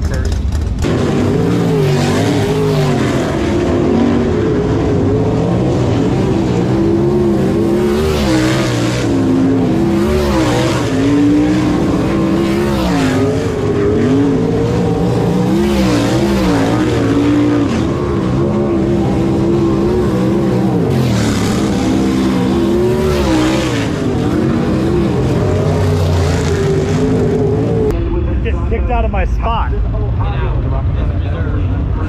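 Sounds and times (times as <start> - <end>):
cars passing close: 0.0 - 32.0
race car engines revving: 0.0 - 32.0.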